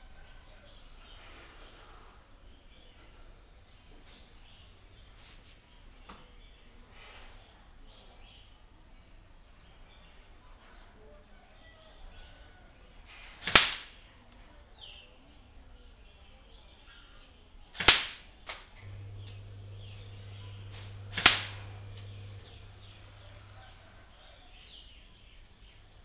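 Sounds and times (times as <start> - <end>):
airsoft gun shots: 13.4 - 14.0, 17.8 - 18.3, 20.7 - 22.7
steady low hum: 18.8 - 24.1.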